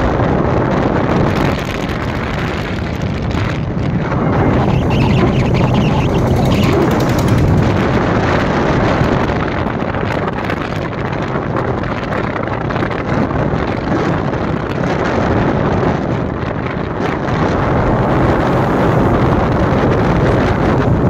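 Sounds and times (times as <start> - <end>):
wind rushing over microphone: 0.0 - 21.0
road noise: 2.6 - 8.8, 16.8 - 21.0
motorcycle engine: 3.9 - 8.5.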